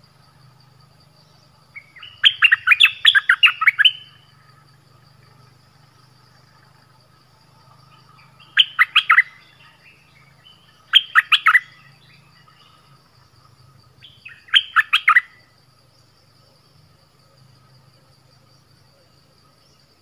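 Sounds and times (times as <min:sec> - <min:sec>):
faint insect drone: 0:00.0 - 0:20.0
bulbul calling loudly: 0:01.8 - 0:04.3, 0:08.0 - 0:12.6, 0:14.0 - 0:15.4.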